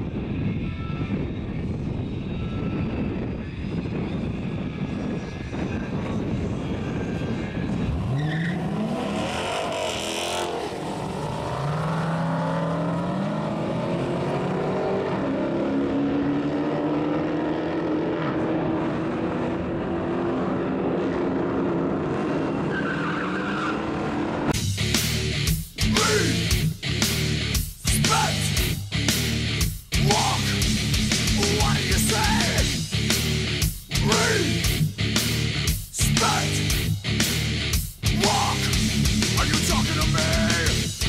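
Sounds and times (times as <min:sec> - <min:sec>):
car engines revving: 0:06.0 - 0:41.0
rock music: 0:24.5 - 0:41.0.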